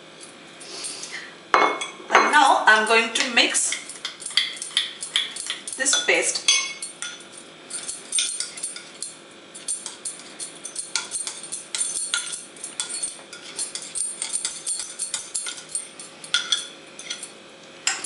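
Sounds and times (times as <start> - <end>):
spoon scraping and clinking bowl: 3.6 - 18.0.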